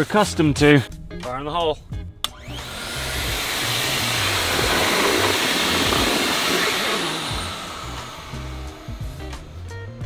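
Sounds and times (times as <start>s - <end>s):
electric air pump blowing: 2.3s - 9.8s.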